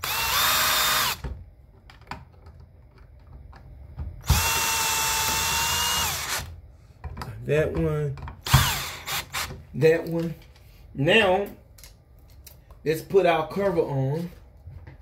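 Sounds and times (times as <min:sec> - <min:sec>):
power drill whine: 0:00.0 - 0:01.2, 0:04.2 - 0:06.5, 0:08.4 - 0:09.5.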